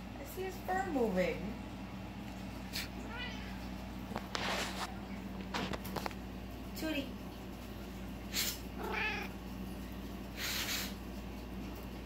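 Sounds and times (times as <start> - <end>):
cat meowing: 3.0 - 3.7, 8.8 - 9.4
puff of breath: 10.4 - 11.0.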